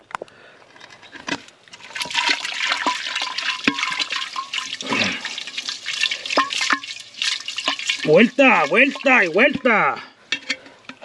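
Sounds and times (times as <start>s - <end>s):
spoon stirring thick dressing: 5.4s - 11.0s.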